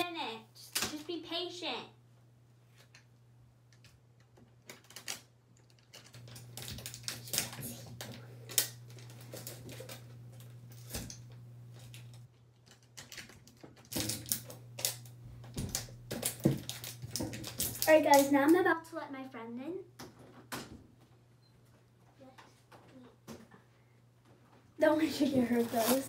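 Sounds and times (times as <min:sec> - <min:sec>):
clicking and tapping of handled objects: 0:03.7 - 0:18.6
steady low hum: 0:06.2 - 0:12.3.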